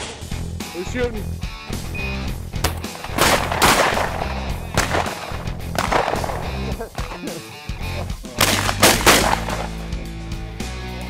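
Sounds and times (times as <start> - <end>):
background music: 0.0 - 11.0
shotgun blasts with echo: 2.6 - 7.4, 8.4 - 10.0.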